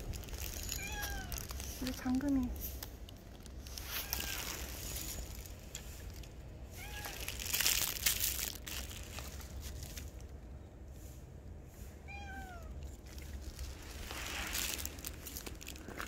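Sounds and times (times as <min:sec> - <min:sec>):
rustling: 0:00.0 - 0:11.2, 0:12.4 - 0:16.0
cat meowing: 0:00.8 - 0:01.4, 0:03.8 - 0:04.6, 0:06.7 - 0:07.3, 0:12.0 - 0:12.8.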